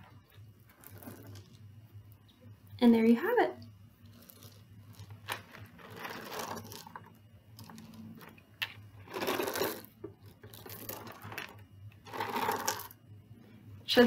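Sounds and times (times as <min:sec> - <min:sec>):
liquid sloshing in a bottle: 0:00.0 - 0:02.2, 0:03.8 - 0:13.0
fill rattling inside plastic: 0:00.7 - 0:01.6, 0:04.1 - 0:13.0.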